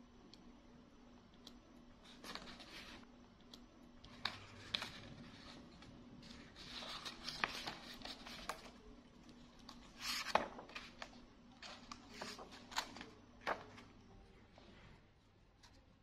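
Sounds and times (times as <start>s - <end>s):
book pages flipping: 2.0s - 3.1s, 4.1s - 14.0s.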